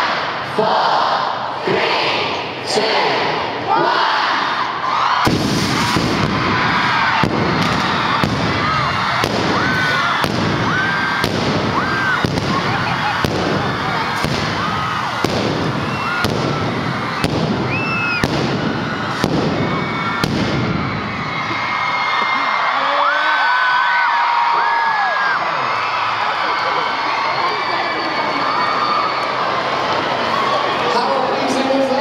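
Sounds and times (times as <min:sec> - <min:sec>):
crowd cheering and screaming: 0:03.2 - 0:32.0
pyrotechnics sharp crack: 0:05.2 - 0:21.0.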